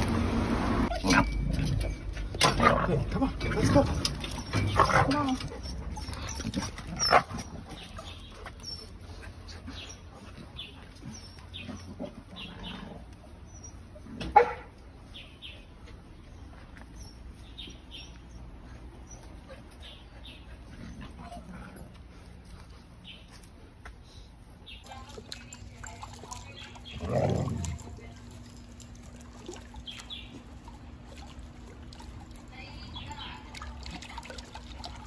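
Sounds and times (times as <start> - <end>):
dog barking: 14.3 - 14.7.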